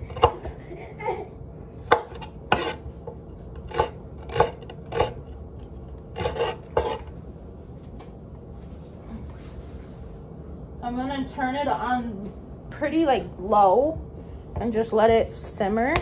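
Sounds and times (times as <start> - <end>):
knife chopping on wooden board: 0.1 - 0.5, 1.9 - 5.2, 6.2 - 7.1.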